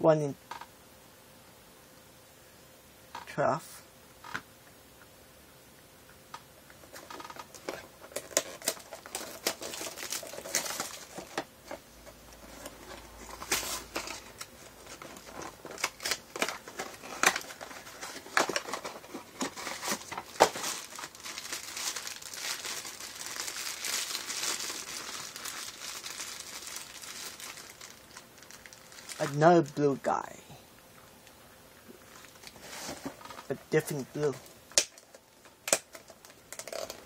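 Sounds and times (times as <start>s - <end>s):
foil bag crinkling and tearing: 6.8s - 30.3s, 32.0s - 37.0s.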